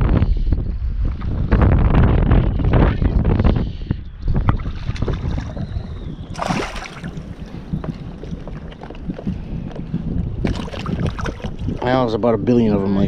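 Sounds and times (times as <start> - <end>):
wind buffeting microphone: 0.0 - 13.0
shallow water lapping: 4.4 - 12.1.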